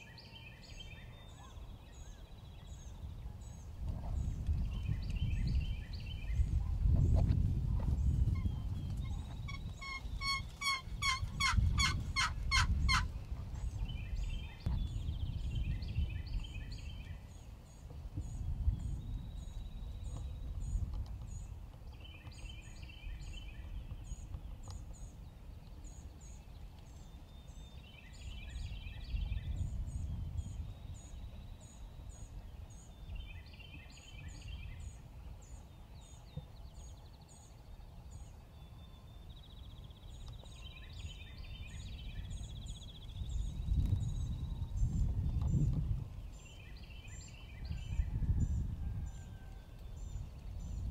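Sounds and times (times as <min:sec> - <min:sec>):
low wind rumble: 0:00.7 - 0:50.9
turkeys gobbling: 0:09.8 - 0:13.1.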